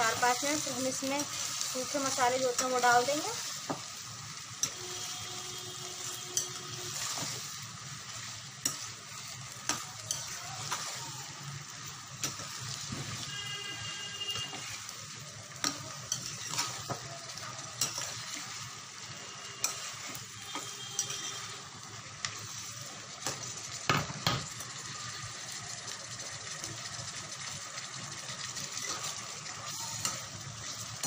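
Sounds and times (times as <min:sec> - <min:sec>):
vegetables sizzling in a frying pan: 0:00.0 - 0:31.0
ladle scraping and clinking pan: 0:16.1 - 0:17.0.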